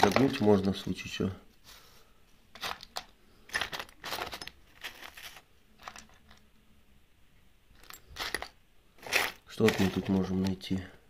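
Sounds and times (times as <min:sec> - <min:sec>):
screws and bolts clinking: 0:02.6 - 0:06.4, 0:07.8 - 0:10.7.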